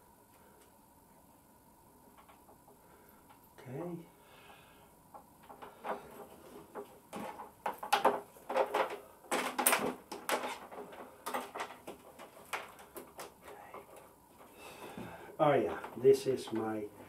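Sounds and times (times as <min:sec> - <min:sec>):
hands handling wiring and plastic: 0:05.1 - 0:16.8.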